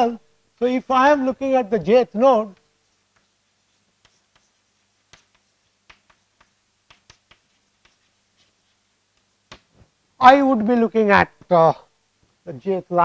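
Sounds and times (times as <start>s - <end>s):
chalk tapping on blackboard: 2.5s - 9.9s.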